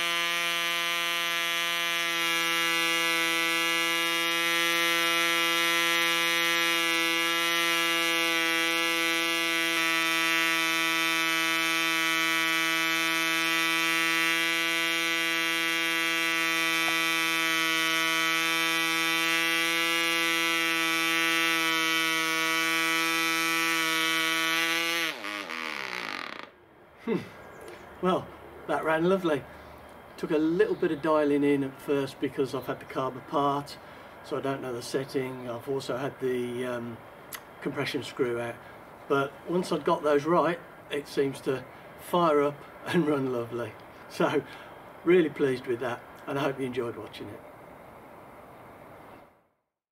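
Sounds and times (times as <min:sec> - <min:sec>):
model engine buzzing: 0:00.0 - 0:26.5.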